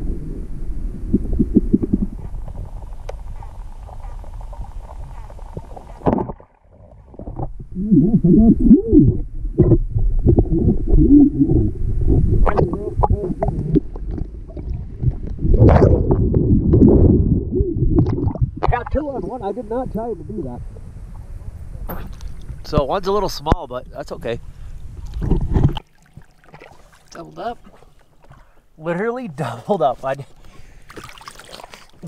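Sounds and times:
gurgling bubbles: 0.0 - 19.3, 24.9 - 28.3
muffled underwater rumbling: 0.0 - 26.9
rush of water: 30.8 - 32.0.

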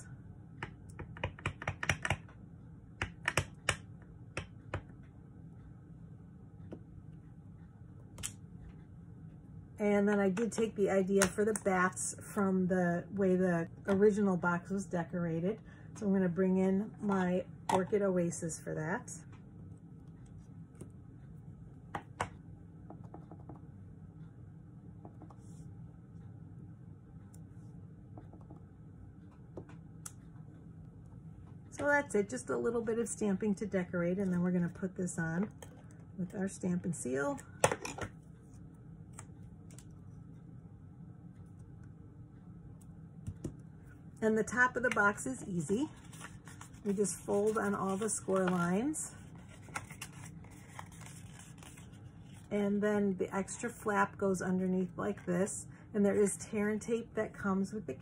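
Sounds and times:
low steady hum: 0.0 - 58.0
plastic stamp tapping ink pad: 0.6 - 2.3, 3.0 - 3.8.

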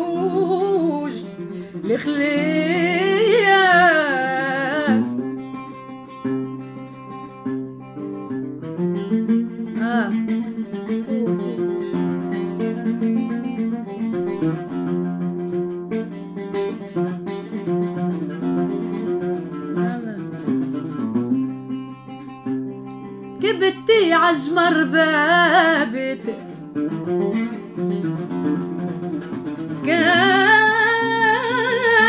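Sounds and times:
oud melody: 10.5 - 15.7, 27.8 - 32.0.

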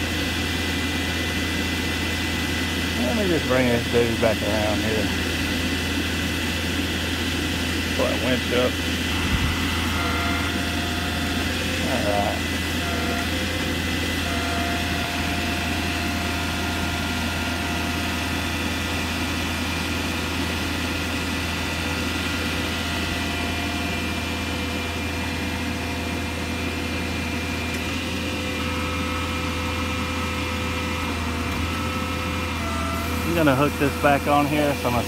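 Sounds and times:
crane whine: 0.0 - 35.0
diesel truck engine idling: 0.0 - 35.0.

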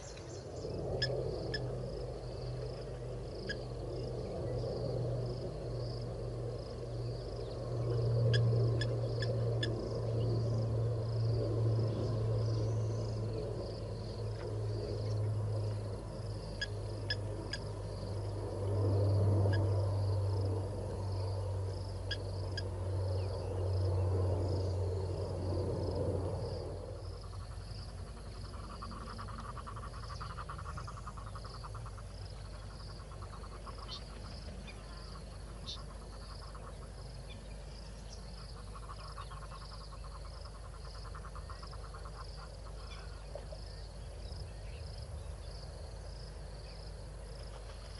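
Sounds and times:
low hum: 0.0 - 34.8
high insect chirp: 0.0 - 47.9.

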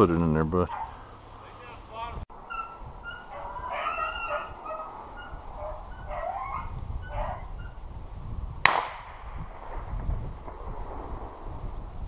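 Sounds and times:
hunting dogs baying: 0.7 - 1.2, 2.4 - 7.7
gunshot: 8.6 - 11.4.

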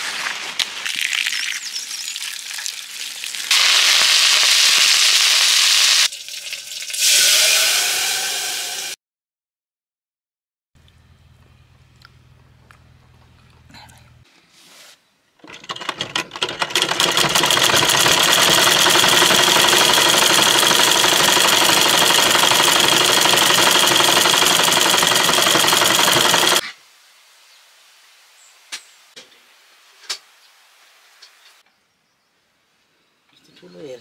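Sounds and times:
sewing machine clattering: 15.4 - 26.6.

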